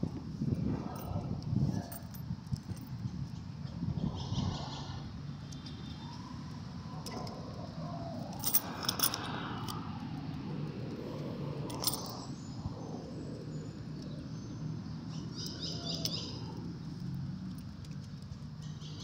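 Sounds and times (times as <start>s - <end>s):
small birds chirping: 12.0s - 17.2s, 18.1s - 19.0s.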